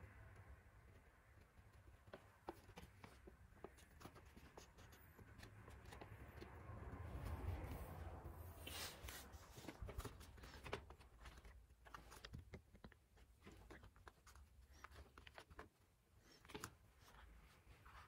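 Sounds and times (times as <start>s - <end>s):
paper rustling and crinkling: 8.7s - 18.0s.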